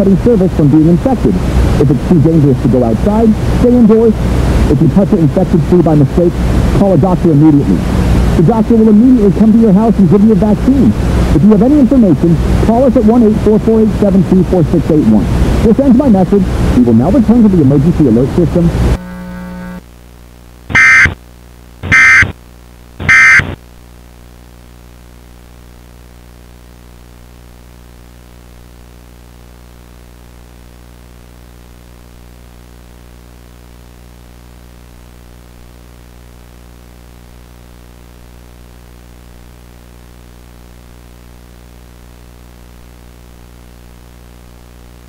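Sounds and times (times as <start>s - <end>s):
steady low hum: 0.0s - 45.0s
buzzing digital data tones: 19.0s - 19.8s, 20.7s - 21.2s, 21.8s - 22.4s, 23.0s - 23.6s.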